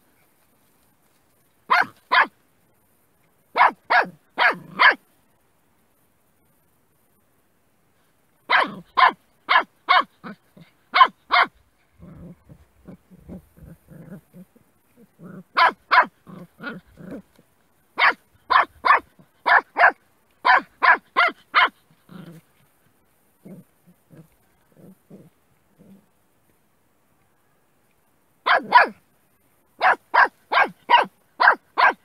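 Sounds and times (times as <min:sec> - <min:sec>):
puppy yapping barks: 0:01.7 - 0:02.3, 0:03.6 - 0:05.0, 0:08.5 - 0:11.5, 0:15.6 - 0:16.8, 0:18.0 - 0:21.8, 0:28.4 - 0:29.0, 0:29.8 - 0:32.0.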